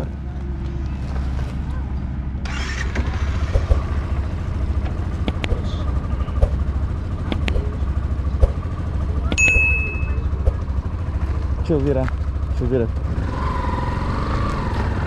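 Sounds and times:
vehicle engine and road rumble: 0:00.0 - 0:15.0
high ding: 0:09.3 - 0:10.3.

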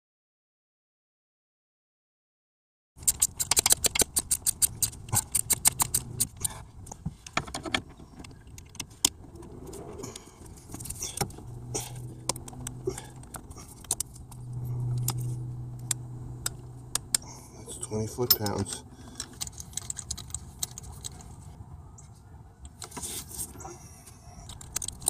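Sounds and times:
socket wrench ratchet clicking: 0:03.0 - 0:06.6
low steady hum: 0:04.0 - 0:22.8.

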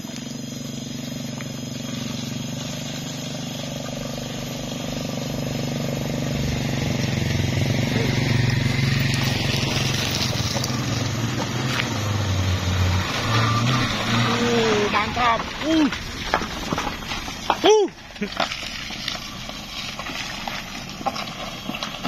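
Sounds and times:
motorcycle engine passing: 0:00.0 - 0:15.8
car engine pulling uphill: 0:00.0 - 0:22.0.

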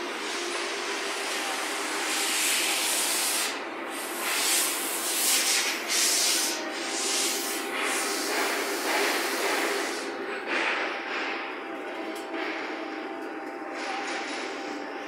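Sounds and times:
loud pulsing hiss: 0:00.0 - 0:11.3
lathe machine hum: 0:00.0 - 0:15.0.

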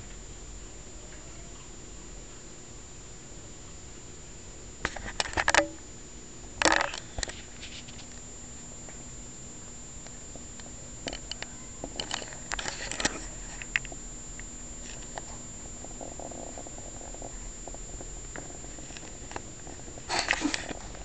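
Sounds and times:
cat crunching food: 0:10.5 - 0:21.0.

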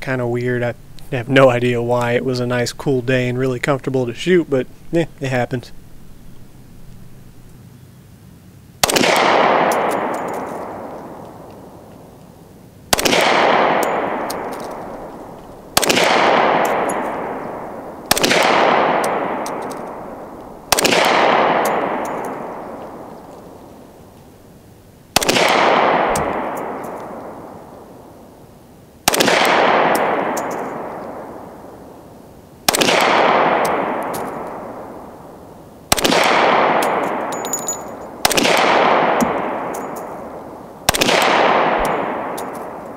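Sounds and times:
pistol shots with echo: 0:08.8 - 0:11.8, 0:12.9 - 0:23.6, 0:25.2 - 0:28.1, 0:29.0 - 0:31.9, 0:32.7 - 0:42.9.

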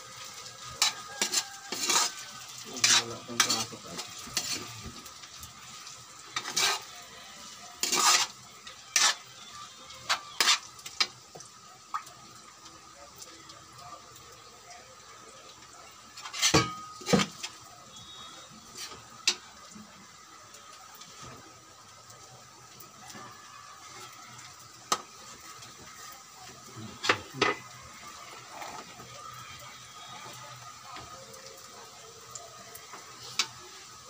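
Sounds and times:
faint steady hiss: 0:00.0 - 0:34.0
metal spatula stirring in wok: 0:00.1 - 0:11.4, 0:16.1 - 0:19.5
metal on metal clanks: 0:16.3 - 0:17.3.

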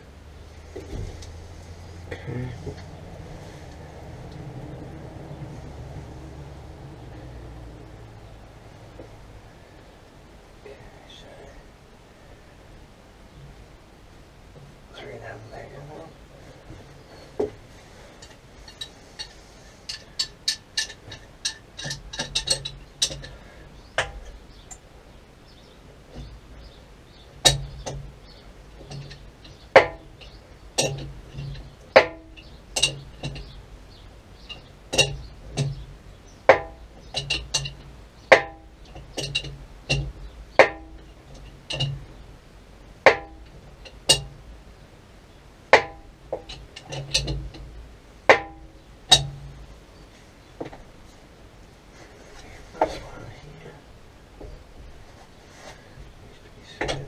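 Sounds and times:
metal knocks with ring: 0:29.8 - 0:33.5, 0:36.5 - 0:41.1, 0:45.8 - 0:47.6.

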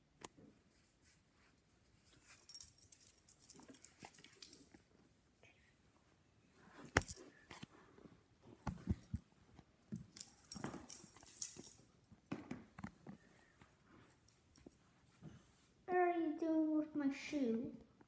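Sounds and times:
dog collar tag jingling: 0:02.3 - 0:04.8, 0:07.0 - 0:07.2, 0:10.1 - 0:12.0.

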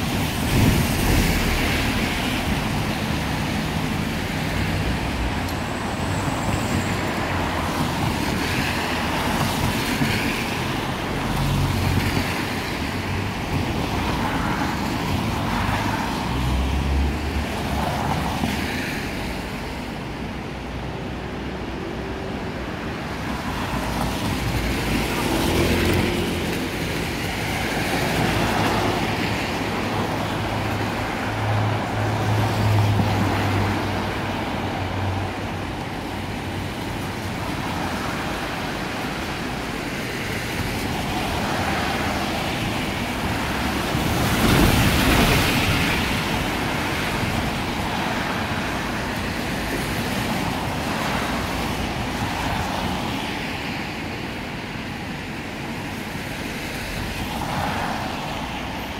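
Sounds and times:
cars passing on wet road: 0:00.0 - 0:58.9.

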